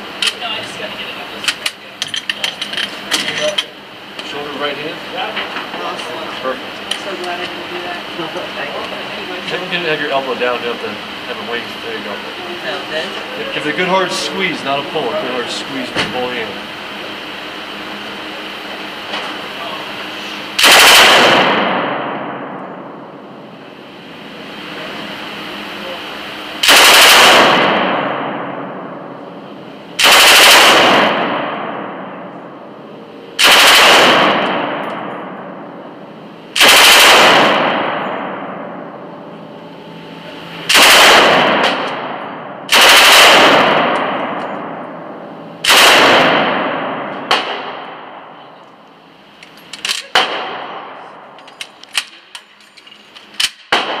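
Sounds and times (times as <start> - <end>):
sharp metallic clicks and clanks: 1.4 - 4.3, 49.4 - 53.8
machine gun bursts: 20.6 - 21.7, 26.6 - 27.7, 30.0 - 31.2, 33.4 - 34.6, 36.6 - 37.9, 40.7 - 41.9, 42.7 - 43.9.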